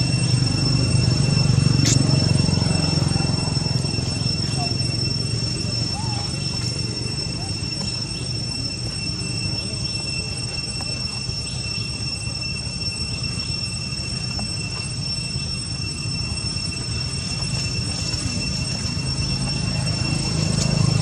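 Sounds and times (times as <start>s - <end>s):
high-pitched whine: 0.0s - 21.0s.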